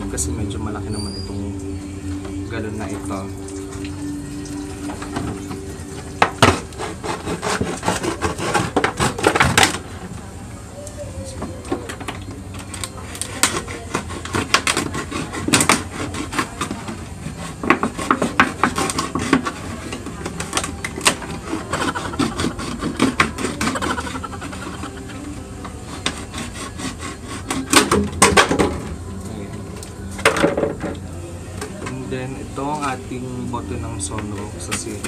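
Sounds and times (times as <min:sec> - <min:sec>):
knife sawing through plastic jug: 0:06.5 - 0:09.6, 0:13.3 - 0:19.8, 0:21.4 - 0:24.9, 0:25.8 - 0:27.9.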